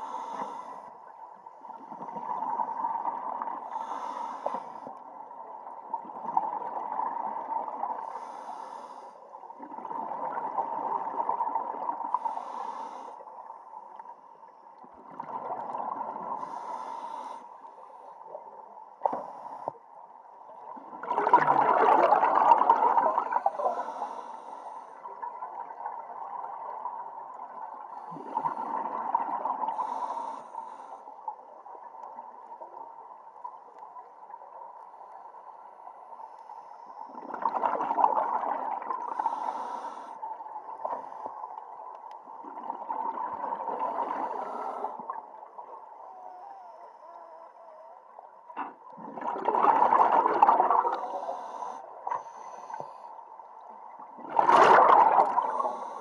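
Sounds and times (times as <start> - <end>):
diver breathing through regulator: 0.0 - 0.9, 3.6 - 4.9, 8.0 - 9.4, 12.1 - 13.3, 16.4 - 18.2, 23.2 - 25.1, 29.6 - 31.2, 39.0 - 41.4, 43.8 - 45.2, 50.8 - 53.2, 55.2 - 56.0
exhaled bubbles bursting: 20.9 - 23.4, 37.2 - 39.1, 48.9 - 51.1, 54.2 - 55.8
steady faint tone: 38.4 - 49.2, 50.1 - 54.2.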